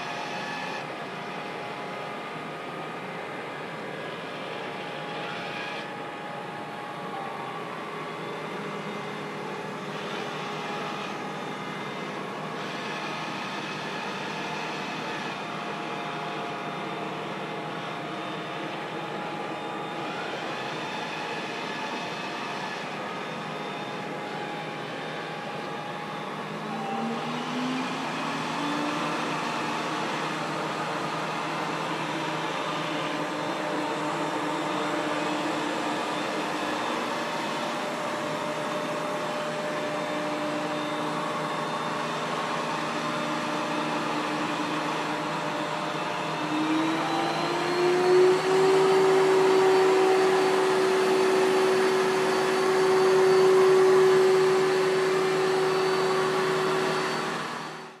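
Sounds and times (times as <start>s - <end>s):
robot vacuum whirring: 16.7s - 57.9s.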